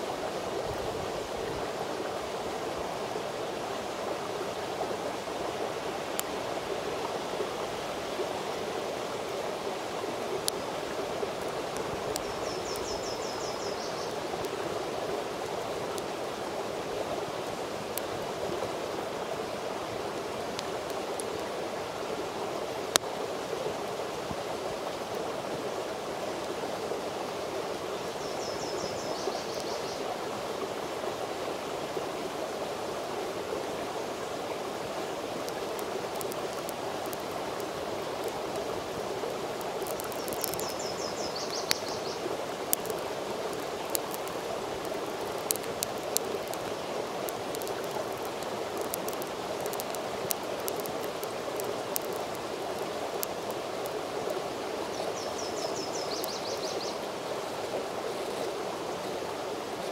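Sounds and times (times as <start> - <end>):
campfire crackling: 5.2 - 8.0, 9.1 - 23.9, 33.2 - 56.5
fire pops: 35.5 - 38.7, 39.6 - 40.8, 43.6 - 54.0.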